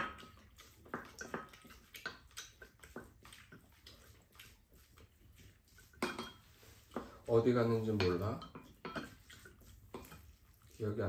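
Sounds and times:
person chewing: 0.0 - 7.2
utensils tapping ceramic bowls: 6.0 - 10.3.

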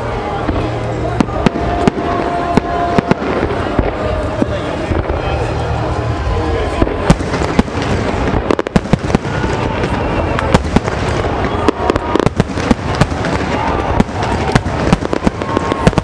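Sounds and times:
crowd voices: 0.0 - 16.0.

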